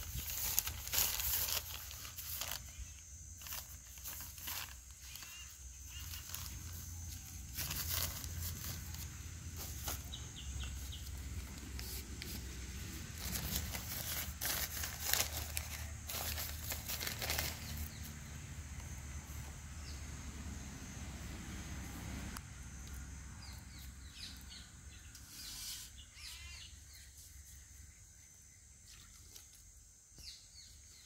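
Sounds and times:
newspaper crinkling: 0.0 - 18.2.

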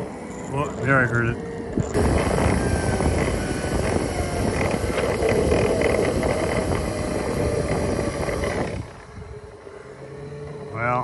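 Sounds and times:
faint wavering whine: 0.0 - 11.0
tyre and motor noise: 0.0 - 11.0.

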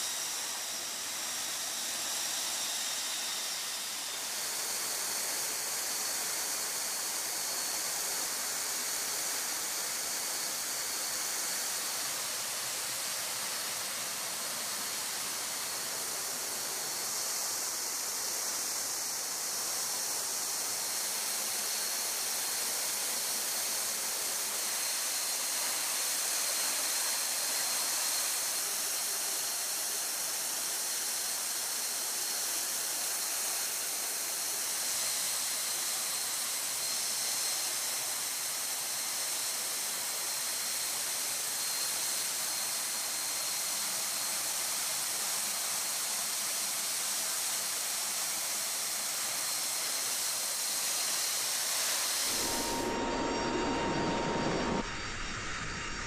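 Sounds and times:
faint high whine: 0.0 - 56.0
air rushing past open door: 52.3 - 56.0.

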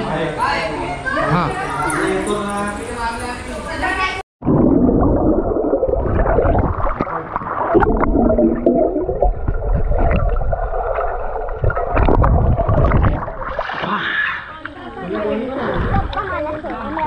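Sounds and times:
underwater rumble and gurgling: 4.4 - 13.7.

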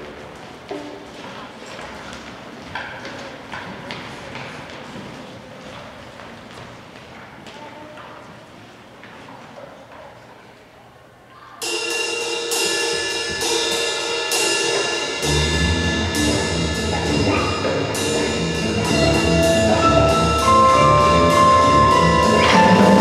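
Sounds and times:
percussion ensemble music: 11.6 - 23.0
low drums: 11.7 - 23.0.

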